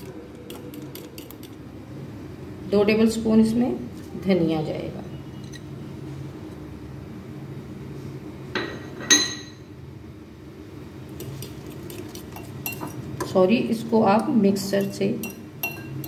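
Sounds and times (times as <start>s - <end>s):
clinks against glass bowl: 8.6s - 9.6s, 12.4s - 13.3s, 14.8s - 16.0s.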